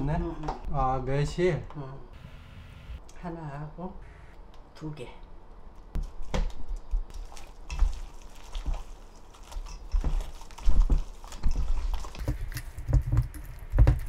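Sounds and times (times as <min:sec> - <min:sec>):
wet squelching of kneaded seaweed: 0:07.1 - 0:12.9.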